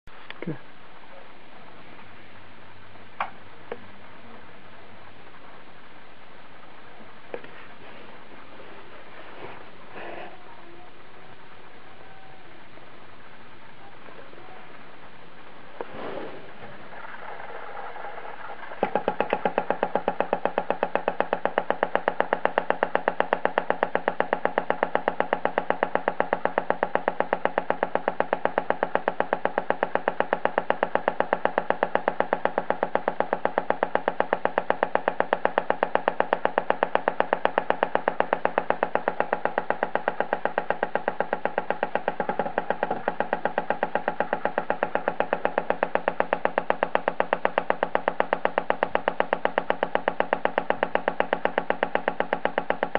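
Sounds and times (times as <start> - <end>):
rapid even clicks: 15.8 - 52.9.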